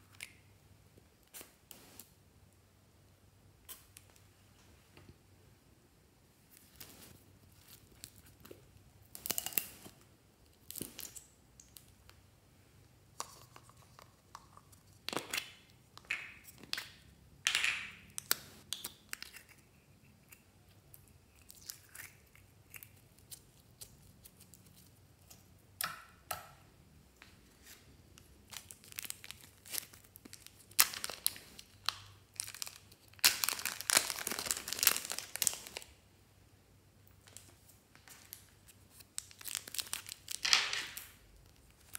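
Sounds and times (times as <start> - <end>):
plastic bag crinkling: 28.4 - 35.9, 37.2 - 41.1.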